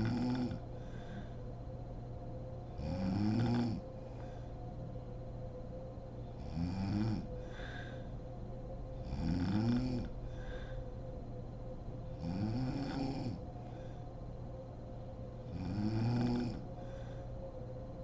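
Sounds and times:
woman snoring: 0.0s - 0.6s, 2.8s - 3.8s, 6.4s - 7.8s, 9.0s - 10.6s, 12.2s - 13.4s, 15.5s - 16.7s
faint steady hum: 0.0s - 18.0s.

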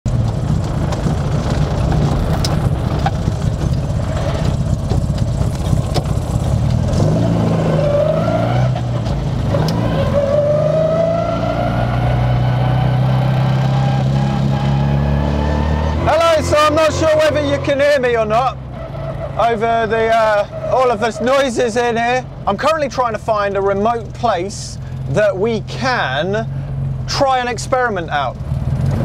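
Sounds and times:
car engine running inside cabin: 0.1s - 18.7s
drivetrain whine: 0.1s - 29.0s.

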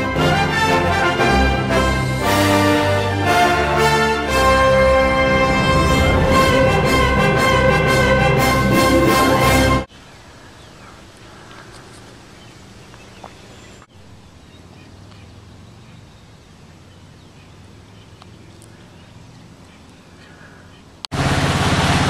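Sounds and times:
title music: 0.0s - 9.9s
low outdoor hiss: 9.2s - 21.1s.

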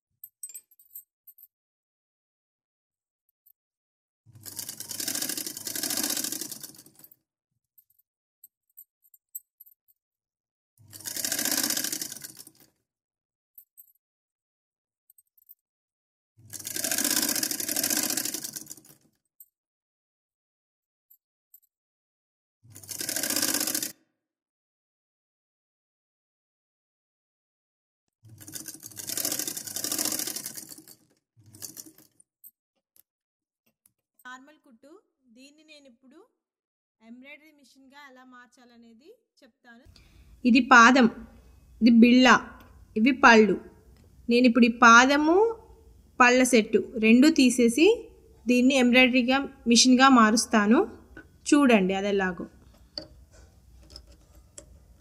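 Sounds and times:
sewing machine stitching: 4.3s - 7.0s, 10.8s - 12.7s, 16.4s - 19.0s, 22.7s - 24.0s, 28.3s - 32.2s.

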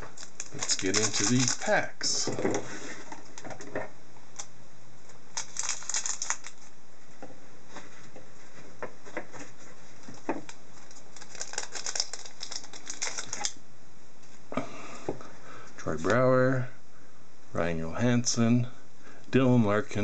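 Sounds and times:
plastic wrapper crinkling: 0.0s - 2.2s, 5.3s - 6.7s, 10.1s - 13.6s.

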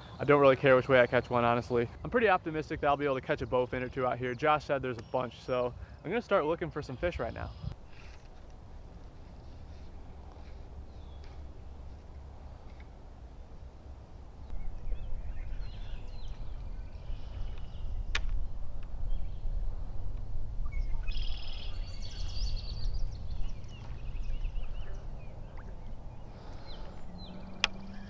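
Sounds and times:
songbirds singing: 0.0s - 8.1s, 9.8s - 13.0s, 14.0s - 19.7s, 20.6s - 28.0s
low microphone rumble: 8.6s - 28.0s
sharp click: 17.6s - 18.9s.

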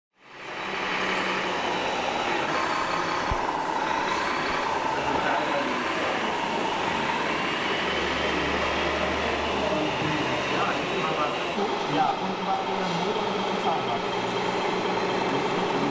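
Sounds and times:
model trucks mechanical drone: 0.2s - 15.9s.

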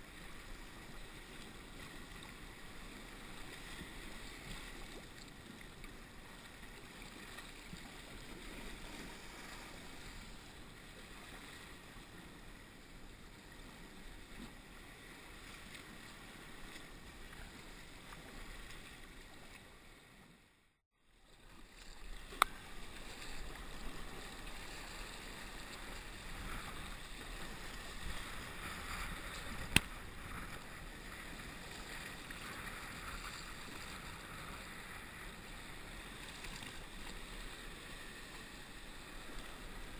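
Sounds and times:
wind: 0.0s - 39.9s
water splashing from paddle strokes: 21.3s - 39.9s.

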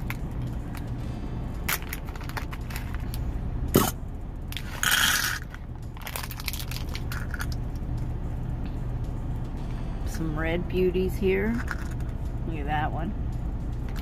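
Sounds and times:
truck engine idling hum: 0.0s - 14.0s
metal beads rattling in plastic container: 4.6s - 7.6s, 11.5s - 12.1s.

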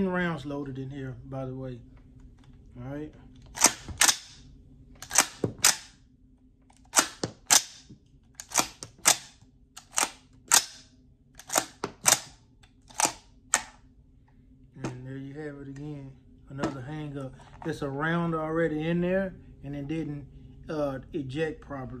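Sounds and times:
rifle action metallic clacks: 3.5s - 4.4s, 5.0s - 5.9s, 8.4s - 10.8s, 11.4s - 13.7s.

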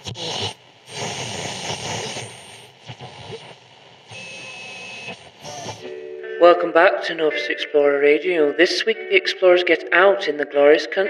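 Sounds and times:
high radio whistle: 0.0s - 5.9s
radio static hiss: 0.0s - 5.9s.

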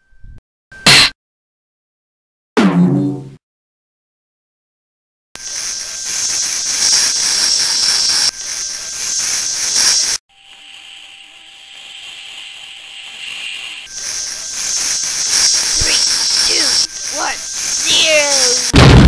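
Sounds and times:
cartoon bug spray hissing: 5.4s - 18.8s.

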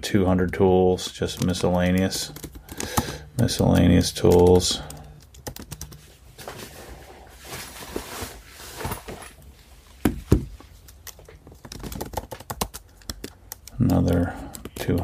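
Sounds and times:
keyboard typing clicks: 1.2s - 6.0s, 10.9s - 15.0s.

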